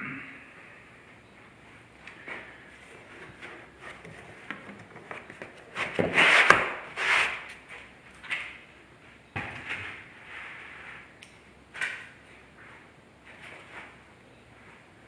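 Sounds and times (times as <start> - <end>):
foam scraping against cardboard: 5.7 - 7.5.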